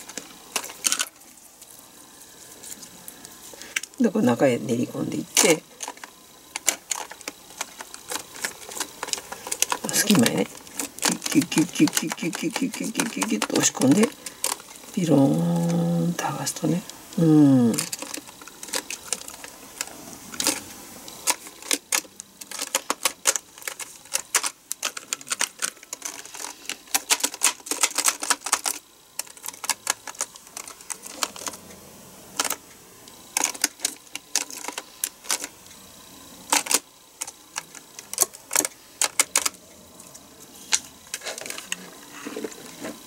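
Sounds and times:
mechanical keyboard keys clicking: 0:06.6 - 0:14.6.

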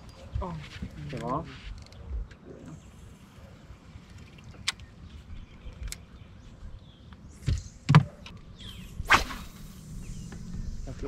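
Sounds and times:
wind rumble: 0:08.4 - 0:11.0.

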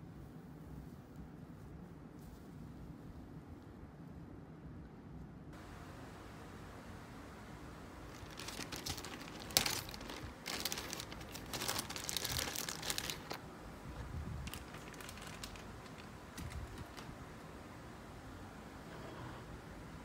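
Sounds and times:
plastic bag crinkling: 0:08.1 - 0:17.2.

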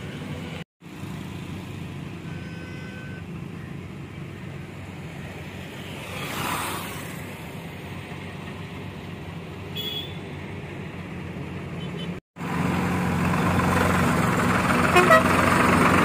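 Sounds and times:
vehicle engines rumbling: 0:00.0 - 0:16.0.

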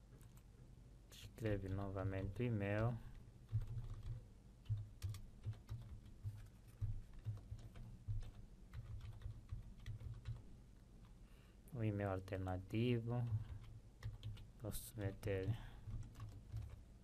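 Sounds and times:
typing on computer keyboard: 0:01.5 - 0:10.4, 0:13.2 - 0:16.8.

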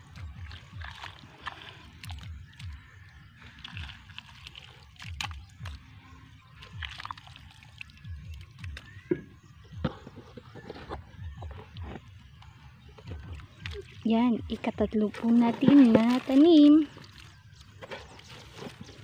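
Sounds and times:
wet sloshing and squelching: 0:00.0 - 0:19.0
trowel stirring mud in water: 0:15.0 - 0:19.0.

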